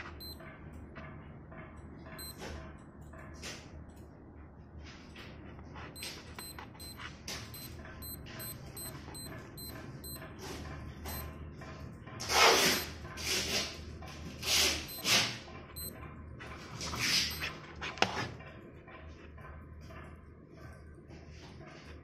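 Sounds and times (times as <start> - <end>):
digital watch beeping: 0.0 - 0.4, 2.2 - 2.4, 6.0 - 10.3, 11.1 - 11.3, 14.9 - 15.2, 15.8 - 16.0, 17.3 - 17.5.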